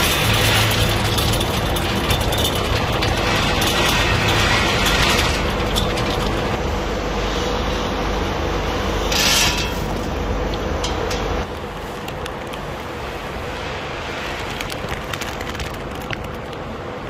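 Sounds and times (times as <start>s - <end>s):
machinery running: 0.0s - 12.0s
conveyor lifting nuts: 0.0s - 12.6s.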